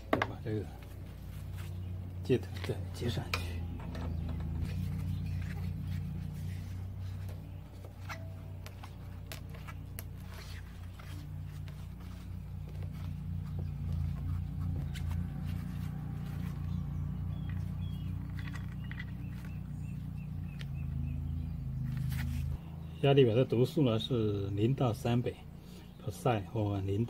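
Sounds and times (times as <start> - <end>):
low machine hum: 0.0 - 27.0
faint clicks and scrapes of fitting: 2.5 - 19.7.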